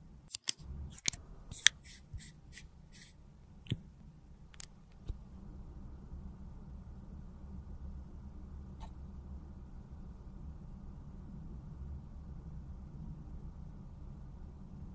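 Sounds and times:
faint low hum: 0.0s - 14.9s
plastic clicks: 0.3s - 1.8s.

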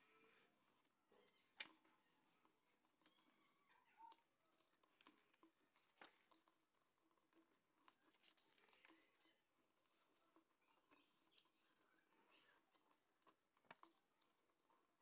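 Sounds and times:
paper rustling and creasing: 0.0s - 15.0s
soft ticks of paper handling: 0.0s - 15.0s.

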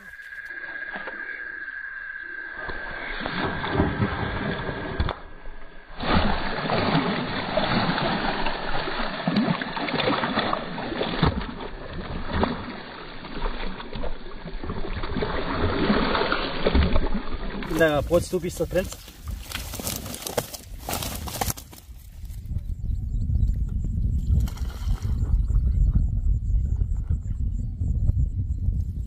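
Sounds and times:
fish thrashing water splashing: 5.9s - 21.6s.

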